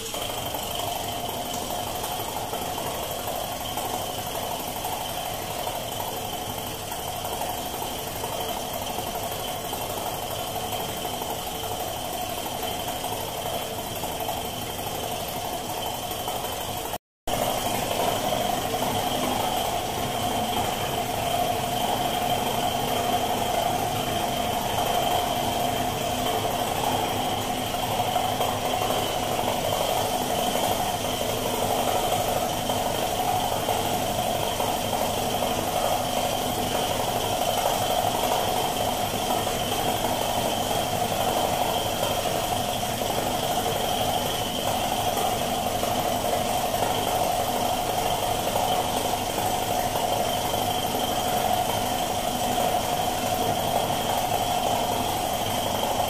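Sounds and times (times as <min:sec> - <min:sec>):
air compressor running: 0:00.0 - 0:56.0.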